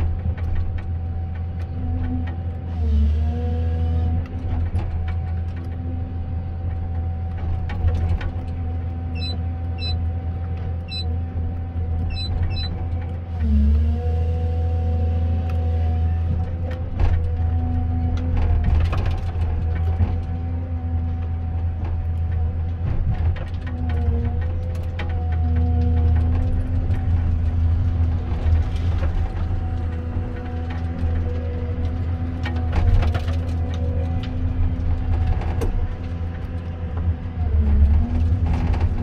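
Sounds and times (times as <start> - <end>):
diesel engine under hydraulic load: 0.0 - 39.0
short high electronic beeps: 9.2 - 10.0, 10.9 - 11.1, 12.1 - 12.7.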